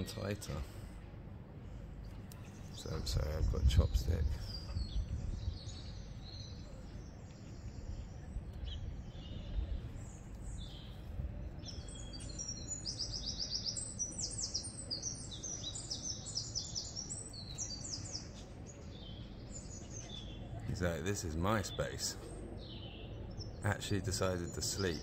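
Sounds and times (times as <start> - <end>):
low outdoor rumble: 0.0 - 12.8
songbirds singing: 0.0 - 25.0.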